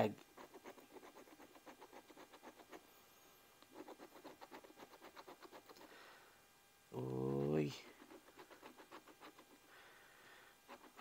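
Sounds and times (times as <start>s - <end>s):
lottery ticket being scratched: 0.4s - 2.8s, 3.7s - 5.8s, 7.4s - 9.6s, 10.8s - 11.0s.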